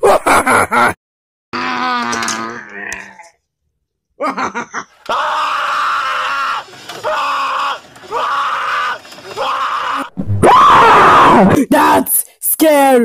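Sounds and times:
person screaming: 1.6s - 3.0s, 5.1s - 12.0s.

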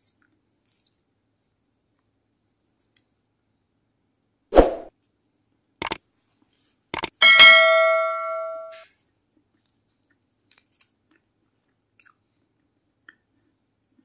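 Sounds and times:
notification bell ding: 7.2s - 8.8s
faint chewing ticks: 9.3s - 14.0s.

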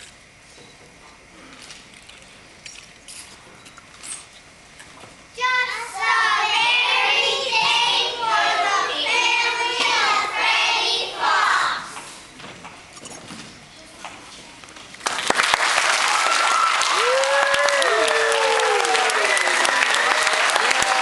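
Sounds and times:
children singing together: 5.4s - 12.0s.

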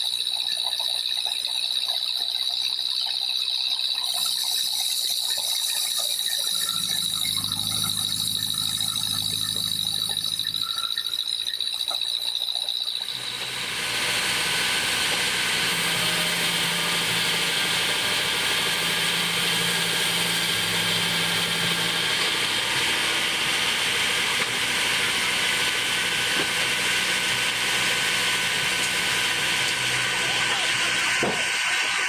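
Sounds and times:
high-pitched saw blade whine: 0.0s - 32.0s
sawmill machine hum: 4.1s - 32.0s.

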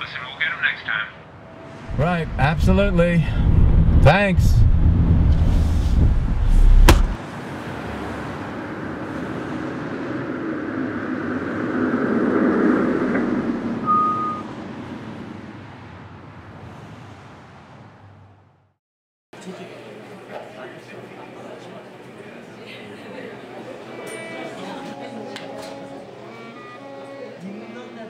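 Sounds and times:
car driving by: 1.4s - 18.7s
car interior rumble: 1.9s - 7.2s
short high beep: 13.8s - 14.5s.

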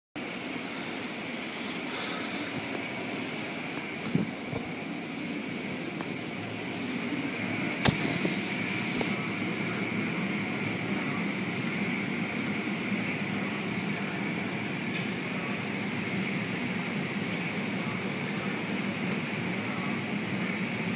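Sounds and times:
car wash brushes whirring: 0.2s - 10.6s.

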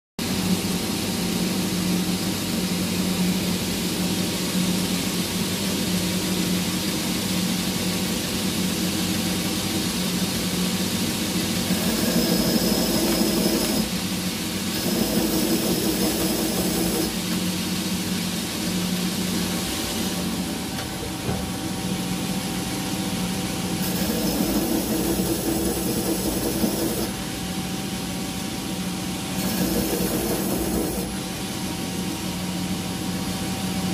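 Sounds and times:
belt grinder humming: 11.7s - 14.0s, 14.7s - 17.2s, 23.8s - 27.2s, 29.4s - 31.2s.

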